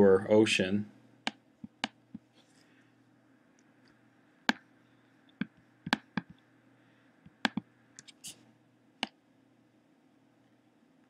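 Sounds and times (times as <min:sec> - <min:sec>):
faint steady hum: 0:00.0 - 0:11.0
computer mouse clicking: 0:05.4 - 0:06.4, 0:07.3 - 0:08.2.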